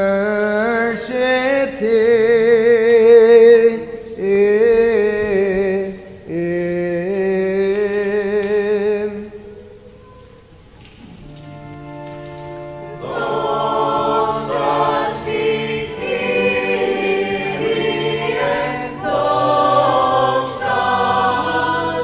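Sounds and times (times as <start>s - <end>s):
man singing chant: 0.0s - 9.4s.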